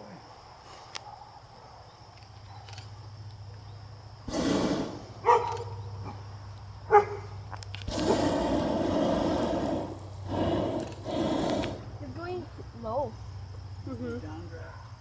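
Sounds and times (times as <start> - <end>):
dog barking: 1.0 - 2.8, 5.2 - 6.2, 6.9 - 7.4, 14.6 - 15.0
steady low hum: 2.7 - 14.5
broad rushing noise: 4.3 - 5.3, 7.9 - 12.1.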